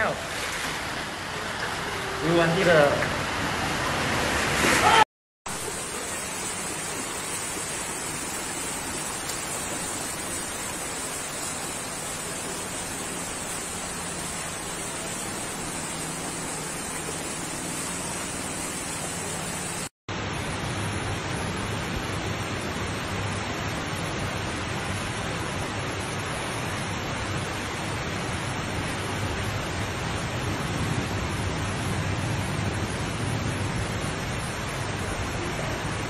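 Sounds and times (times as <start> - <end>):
fast-flowing floodwater rushing: 0.0 - 19.9.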